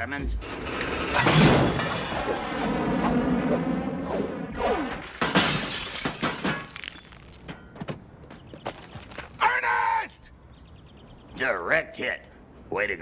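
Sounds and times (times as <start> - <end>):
window glass shattering: 1.1 - 2.3, 5.0 - 7.8.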